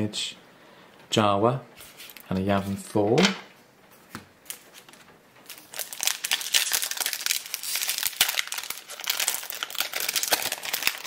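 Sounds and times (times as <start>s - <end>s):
foil wrapper crinkling: 4.4s - 11.0s.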